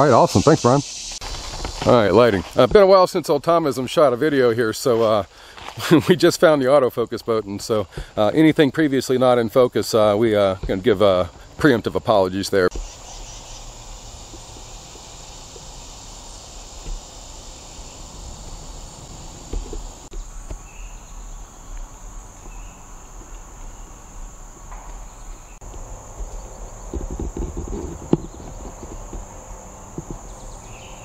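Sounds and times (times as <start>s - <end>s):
insects droning: 0.0s - 31.0s
low thumps and rustles: 1.1s - 2.8s, 13.6s - 20.7s, 24.4s - 30.8s.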